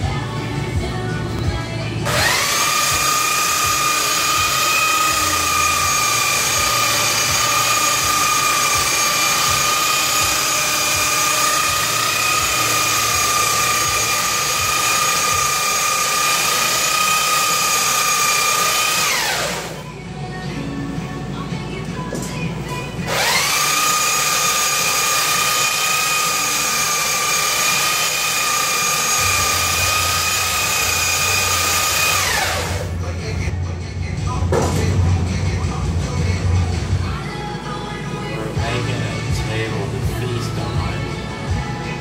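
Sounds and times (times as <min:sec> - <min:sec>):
electric belt sander on wood: 0:02.1 - 0:19.8, 0:23.1 - 0:32.9.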